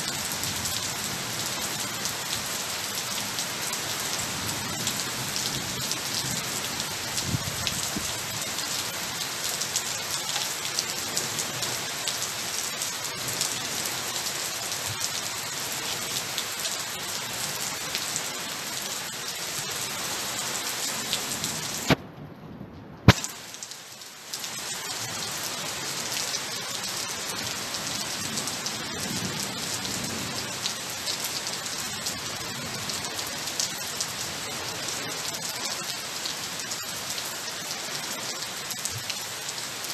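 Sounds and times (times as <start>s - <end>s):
heavy rain on water and leaves: 0.0s - 39.9s.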